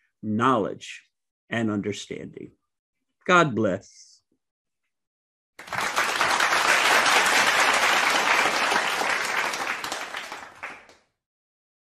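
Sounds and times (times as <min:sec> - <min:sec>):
crowd applauding: 0:05.6 - 0:11.1.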